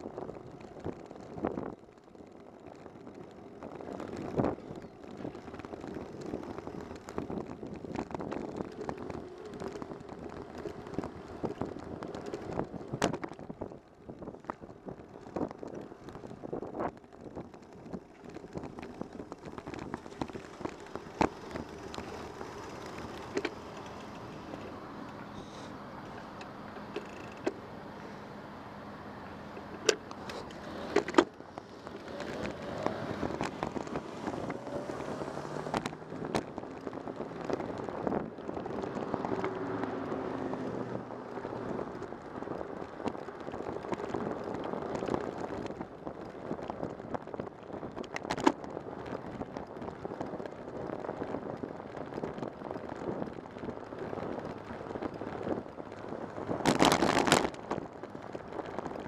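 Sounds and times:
wind and road noise: 0:00.0 - 0:59.0
motor traffic passing: 0:00.1 - 0:45.8.

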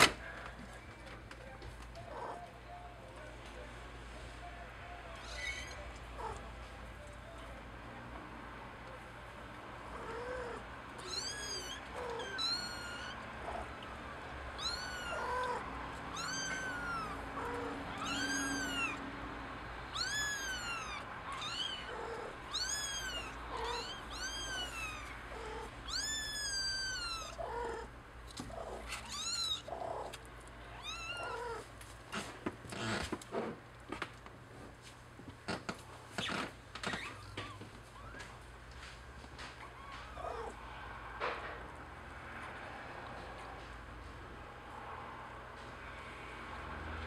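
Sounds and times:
kittens mewing: 0:05.1 - 0:06.6, 0:09.8 - 0:19.1, 0:19.8 - 0:33.1, 0:39.4 - 0:40.8.

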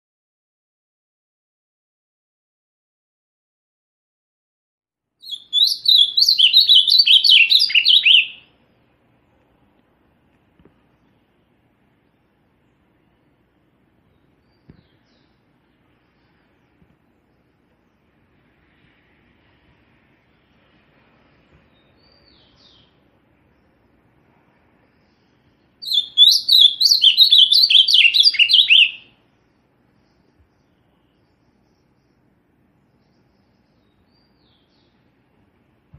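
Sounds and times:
bird singing warbled phrase: 0:05.2 - 0:08.5, 0:24.9 - 0:29.2
bird singing: 0:05.2 - 0:08.7, 0:14.0 - 0:18.2, 0:21.7 - 0:24.0, 0:24.7 - 0:35.2.

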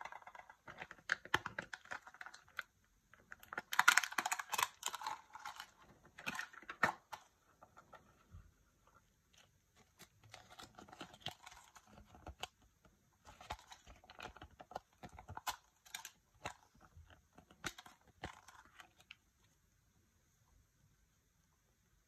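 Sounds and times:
paper crinkling and rustling: 0:09.3 - 0:19.2.

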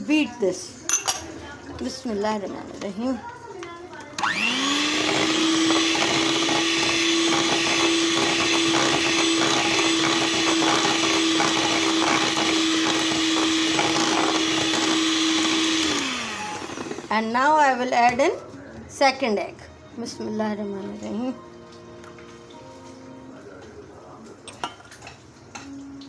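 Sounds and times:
electric hand mixer running: 0:04.2 - 0:17.5.

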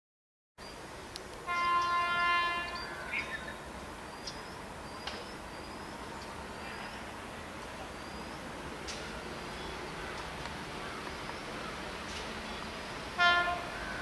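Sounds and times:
distant locomotive horn: 0:01.4 - 0:03.2, 0:13.0 - 0:14.0.

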